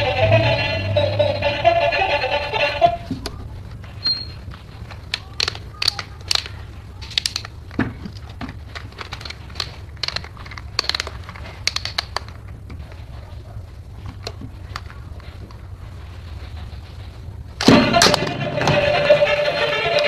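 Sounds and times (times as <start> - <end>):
steady low hum: 0.0 - 20.0
plastic toy clicks and rattles: 4.0 - 13.2, 14.0 - 15.6.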